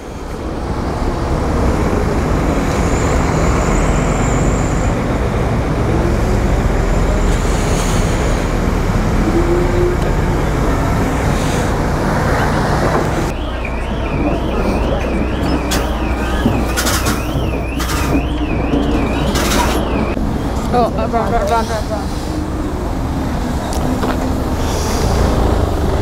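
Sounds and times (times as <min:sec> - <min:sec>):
lorry engines rumbling: 0:00.0 - 0:26.0.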